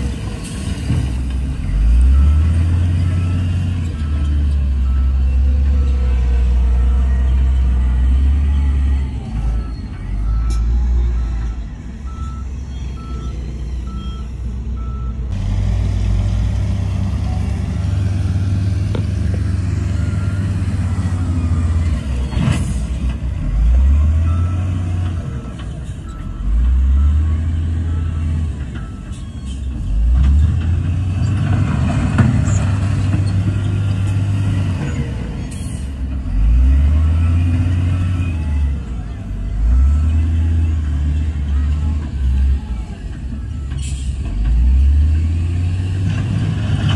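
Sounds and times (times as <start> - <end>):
heavy diesel engines revving: 0.0 - 46.9
reversing alarm beeping: 2.0 - 15.3.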